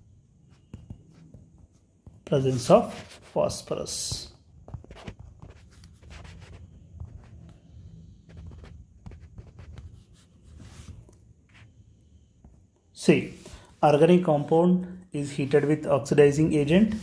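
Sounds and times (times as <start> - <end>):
stylus tapping and scratching: 0.4 - 7.6, 8.2 - 11.7.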